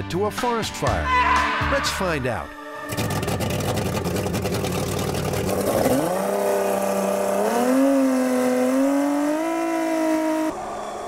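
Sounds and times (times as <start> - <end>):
outboard motor revving: 2.9 - 10.5.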